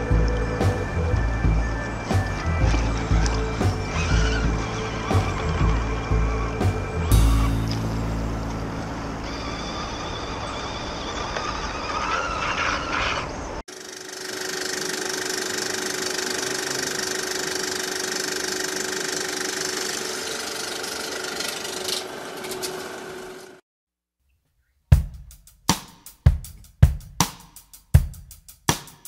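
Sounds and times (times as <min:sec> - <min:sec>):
electric motor whining: 0:00.0 - 0:08.6, 0:13.7 - 0:23.6
film projector whirring: 0:13.7 - 0:23.6.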